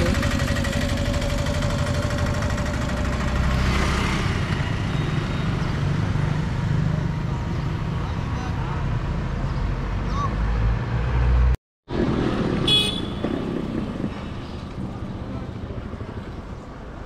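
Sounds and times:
motorcycle engine idling: 0.0s - 3.4s
scooter passing: 0.0s - 7.3s, 11.2s - 16.9s.

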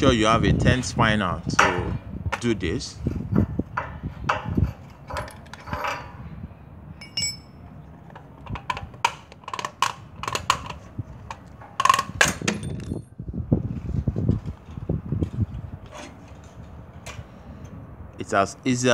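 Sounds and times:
short metallic ring: 7.0s - 7.6s.

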